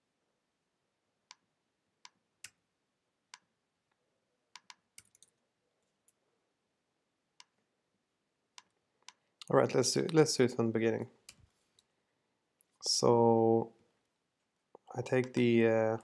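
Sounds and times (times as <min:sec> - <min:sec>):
keyboard and mouse clicks: 0:04.6 - 0:05.4, 0:07.4 - 0:07.6, 0:08.6 - 0:10.3, 0:14.8 - 0:15.5.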